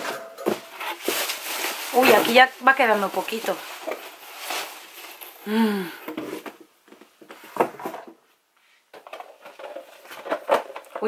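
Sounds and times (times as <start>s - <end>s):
cardboard box rustling: 0.0s - 5.4s
person humming: 5.4s - 6.1s.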